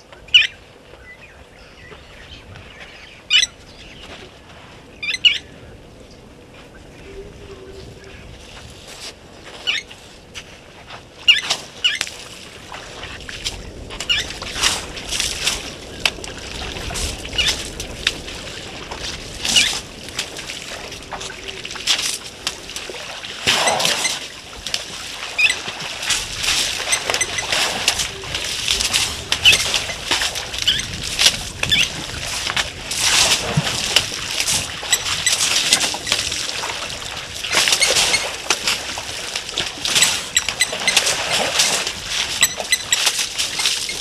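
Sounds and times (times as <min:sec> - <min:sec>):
water splashing and sloshing: 0:00.0 - 0:44.0.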